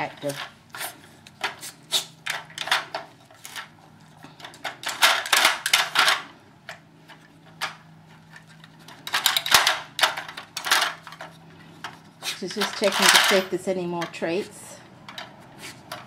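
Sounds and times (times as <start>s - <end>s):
plastic toy rattling on floor: 4.4s - 6.2s, 7.5s - 14.2s.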